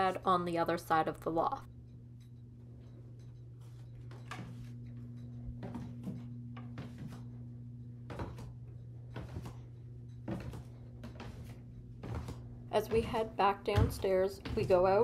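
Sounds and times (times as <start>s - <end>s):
steady low hum: 0.0s - 15.0s
footsteps on wooden floor: 4.0s - 7.4s, 8.0s - 15.0s.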